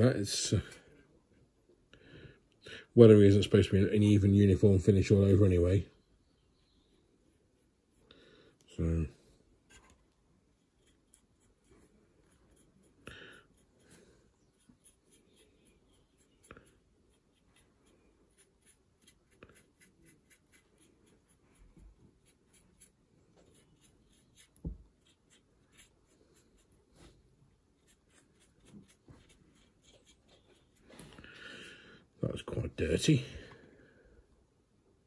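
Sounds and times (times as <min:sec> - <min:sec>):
paintbrush scratching: 0:06.8 - 0:08.7, 0:09.6 - 0:31.4.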